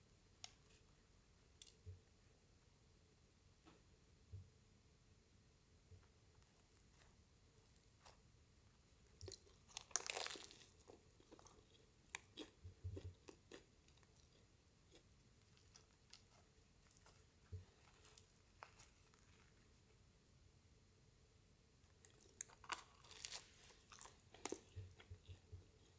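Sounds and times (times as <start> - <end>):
bread crust crackling as torn: 9.2 - 11.6, 22.1 - 25.3.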